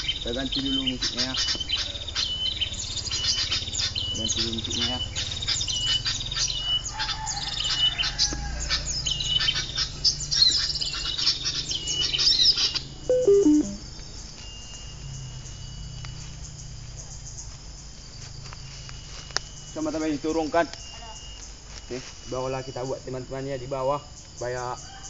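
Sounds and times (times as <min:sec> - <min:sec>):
recorded bird calls from phone: 0:00.0 - 0:08.4, 0:10.4 - 0:13.8
insect sounds: 0:00.0 - 0:25.0.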